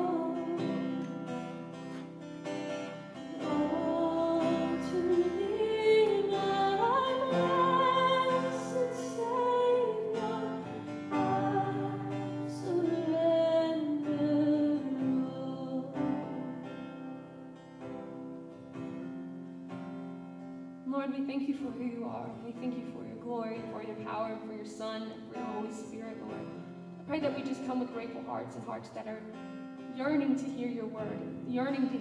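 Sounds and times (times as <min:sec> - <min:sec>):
woman singing slow melody: 0:00.0 - 0:01.2, 0:03.2 - 0:17.0
strummed acoustic guitar: 0:00.0 - 0:32.0.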